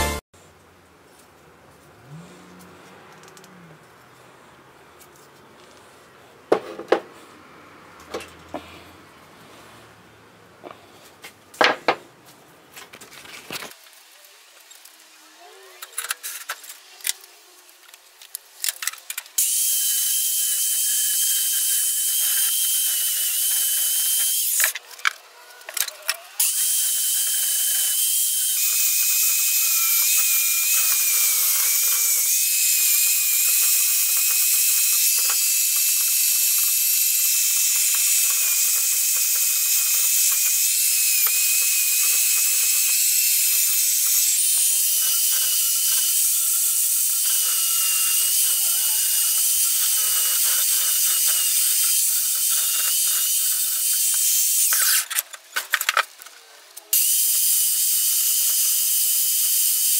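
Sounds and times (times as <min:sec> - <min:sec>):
drill wire brush whining: 0:19.4 - 0:55.2.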